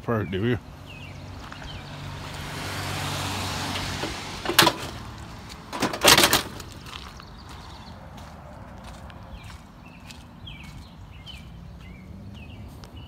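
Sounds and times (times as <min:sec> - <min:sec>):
vehicle passing: 0:00.3 - 0:13.0
sheet metal clanking and rattling: 0:03.9 - 0:05.0, 0:05.7 - 0:06.7.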